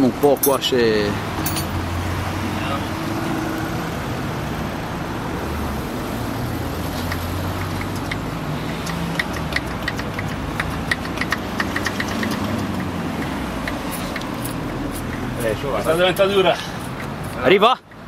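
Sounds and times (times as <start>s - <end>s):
hand primer clicking: 7.1s - 15.3s.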